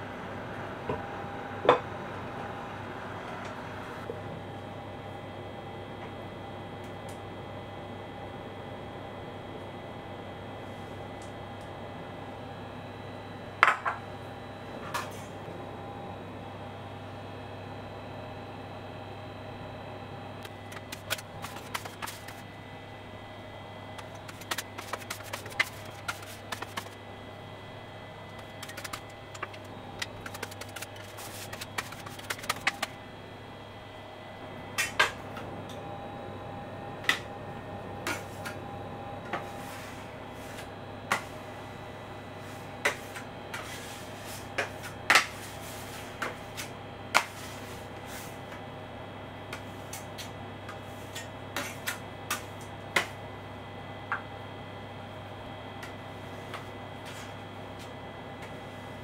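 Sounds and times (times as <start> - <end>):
scraper scraping on marble: 20.5 - 22.4, 24.0 - 27.0, 28.3 - 33.0.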